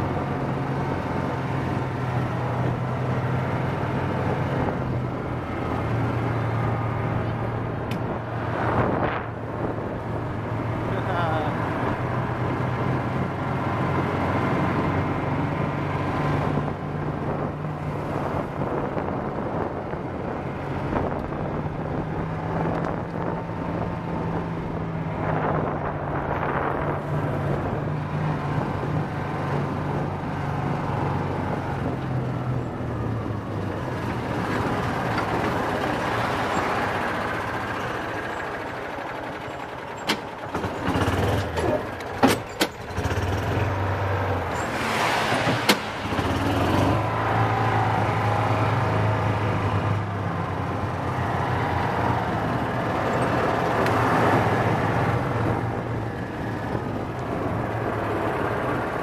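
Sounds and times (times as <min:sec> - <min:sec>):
utility vehicle engine running: 0:00.0 - 0:59.0
sharp clicks and knocks: 0:40.0 - 0:42.9.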